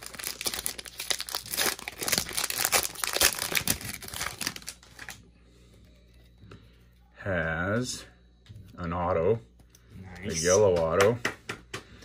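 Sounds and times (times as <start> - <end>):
foil wrapper crinkling and tearing: 0.0 - 5.2.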